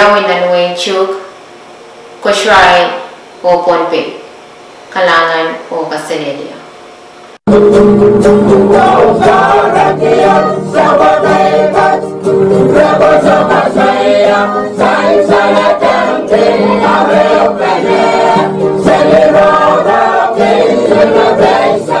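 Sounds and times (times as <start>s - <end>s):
choir singing sustained chords: 7.6s - 22.0s.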